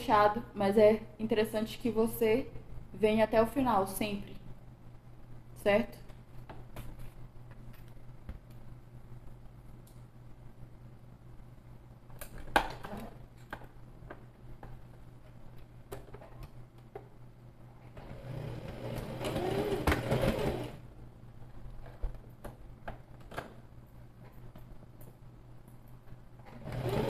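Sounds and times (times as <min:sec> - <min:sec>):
sewing machine stitching: 0:18.0 - 0:20.8, 0:26.5 - 0:27.0.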